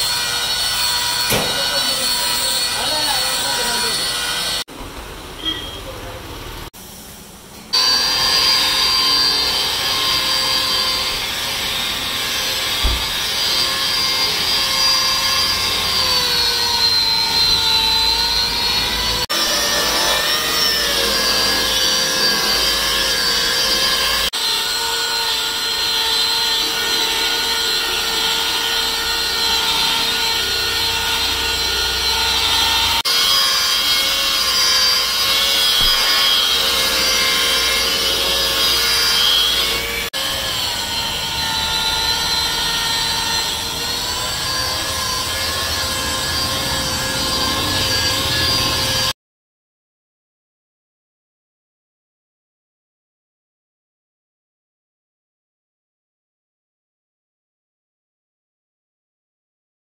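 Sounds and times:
electric polisher whining: 0.0s - 4.7s, 7.7s - 49.2s.

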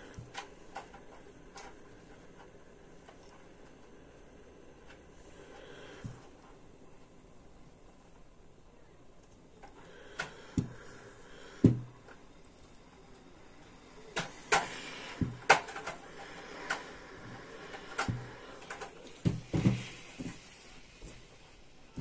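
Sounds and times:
steam iron knocking on padded table: 11.6s - 11.9s.

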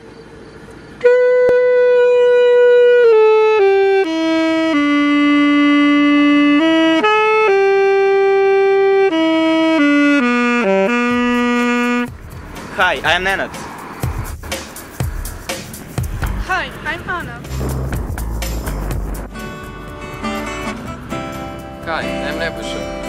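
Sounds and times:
saxophone playing slow melody: 0.9s - 12.2s.

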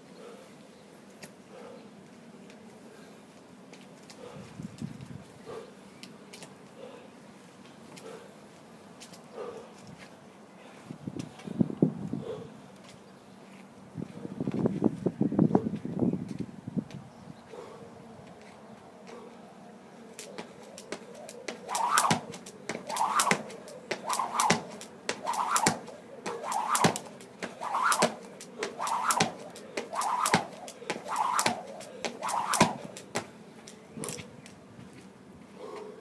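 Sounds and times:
workout rushing strokes: 20.3s - 33.3s.

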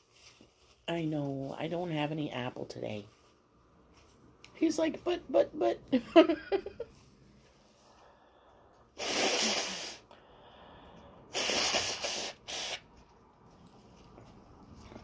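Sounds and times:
person blowing nose into tissue: 9.0s - 10.1s, 11.3s - 13.0s.

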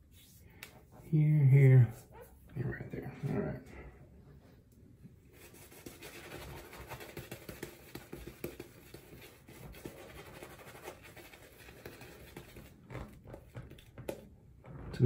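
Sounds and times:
shaving brush rubbing lather: 5.3s - 13.1s.

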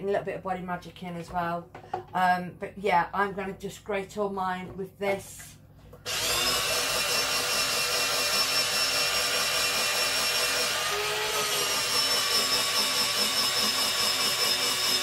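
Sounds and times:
electric grater shredding carrots: 6.1s - 15.0s.

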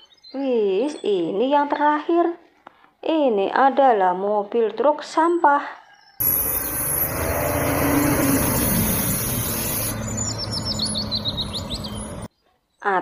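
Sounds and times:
garbage truck engine drone: 6.2s - 12.3s
high falling chirps: 6.2s - 12.3s
road noise: 6.2s - 12.3s.

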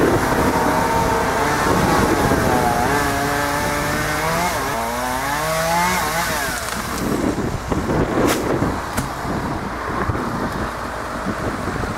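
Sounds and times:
chainsaw revving: 0.0s - 7.2s.

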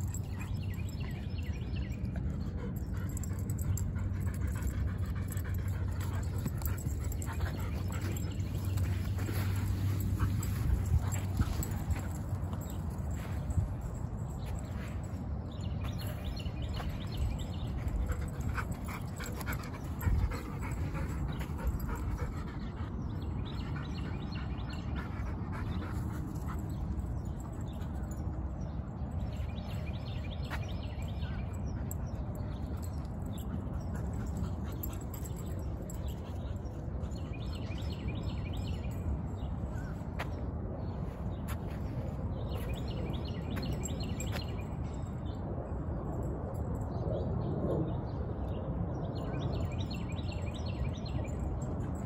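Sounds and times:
steady low rumble: 0.0s - 52.0s.

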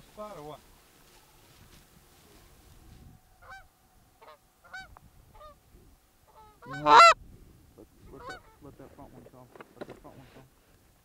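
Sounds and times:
goose honking: 3.4s - 5.6s, 6.3s - 7.2s, 8.2s - 8.6s.

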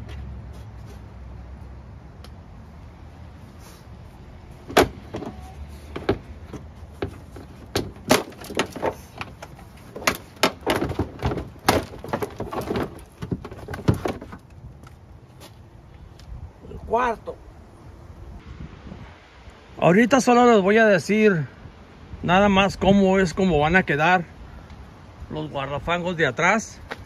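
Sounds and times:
plastic rubbing and knocking: 4.7s - 14.5s.

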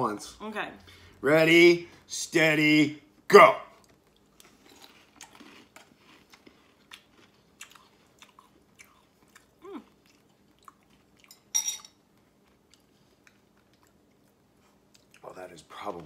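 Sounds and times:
people chewing crunchy cereal: 3.8s - 11.5s, 12.1s - 16.0s.

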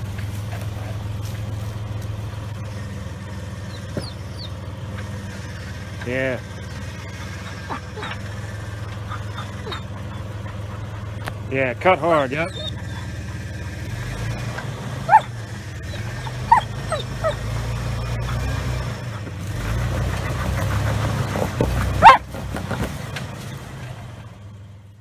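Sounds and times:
car engine running low: 0.0s - 25.0s
dog barking: 9.1s - 10.9s, 15.1s - 15.4s, 16.2s - 17.4s, 21.9s - 22.3s.

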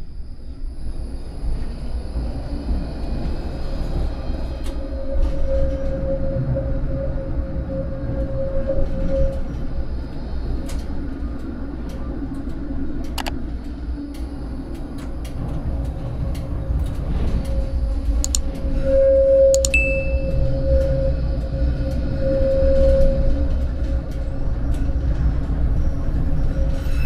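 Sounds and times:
tram rumble and hum: 0.0s - 27.0s
sharp clicks: 13.1s - 13.4s, 18.2s - 18.6s, 19.6s - 19.8s
high beep: 19.5s - 20.4s.

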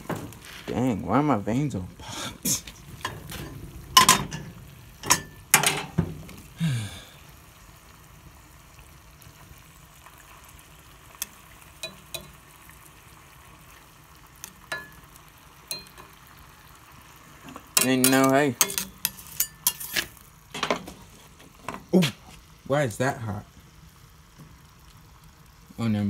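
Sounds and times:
meat sizzling in oil: 0.0s - 26.0s
metal utensil clinking on pan: 3.0s - 6.0s, 11.8s - 12.4s, 14.6s - 15.0s, 15.7s - 16.2s, 17.5s - 20.9s.

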